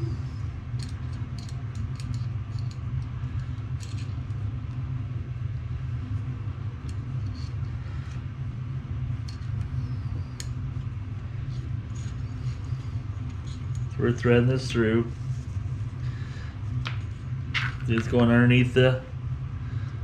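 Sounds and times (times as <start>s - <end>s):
steady low rumble: 0.0s - 20.0s
small parts clicking and tapping: 0.8s - 4.4s.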